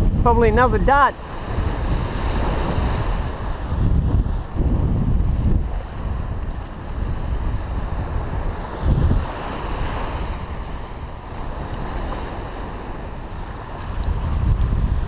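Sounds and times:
small waves breaking on sand: 0.0s - 15.0s
wind buffeting microphone: 0.0s - 15.0s.

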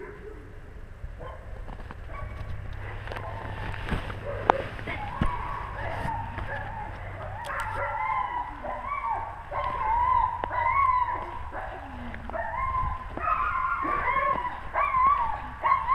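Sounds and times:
dogs whining and yipping: 4.2s - 15.9s.

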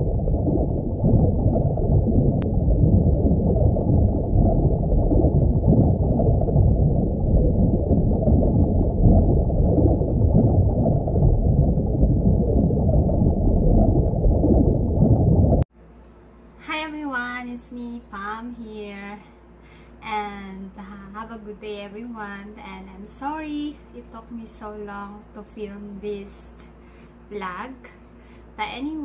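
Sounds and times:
underwater rumble and gurgle: 0.0s - 15.7s.

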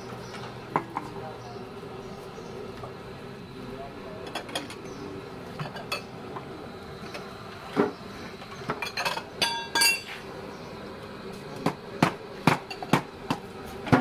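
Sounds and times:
ladle and bowls clinking on pot: 8.7s - 10.1s.

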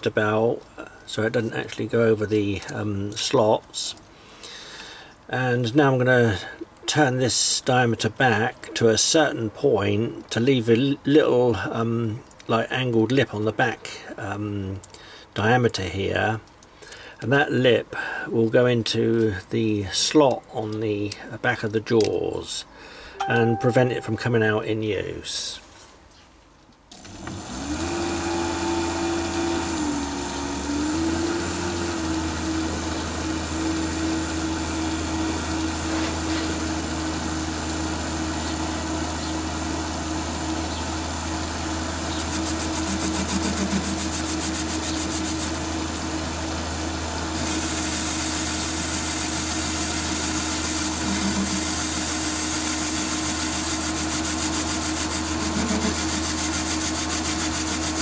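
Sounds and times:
cutting tool hiss: 42.2s - 45.6s, 47.4s - 58.0s.

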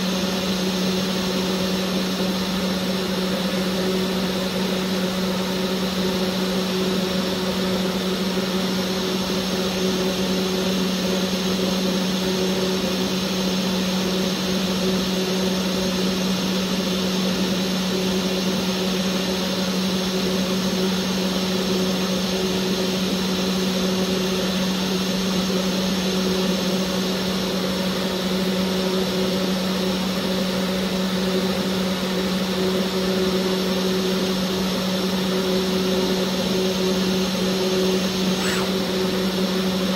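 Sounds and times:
engraving spindle motor hum: 38.0s - 39.2s.

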